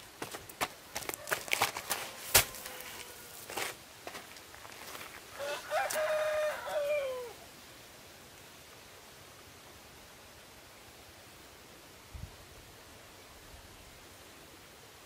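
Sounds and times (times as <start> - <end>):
rooster crowing: 1.0 - 3.6, 5.3 - 7.5.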